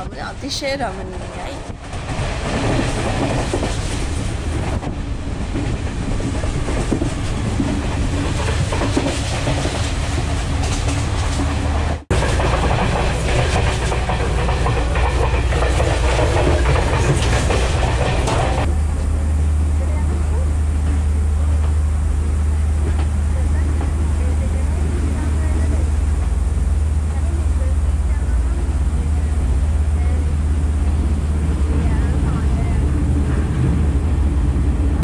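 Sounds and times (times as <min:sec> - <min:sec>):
train wheels clickety-clack: 0:00.0 - 0:19.2, 0:19.8 - 0:34.0.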